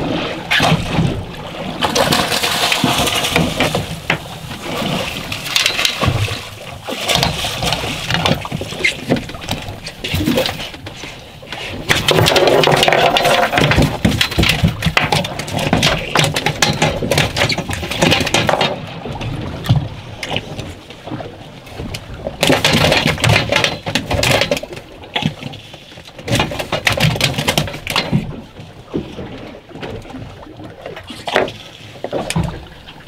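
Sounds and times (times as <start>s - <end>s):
water splashing against boat: 0.0s - 33.0s
gear knocking and clattering: 11.9s - 18.8s.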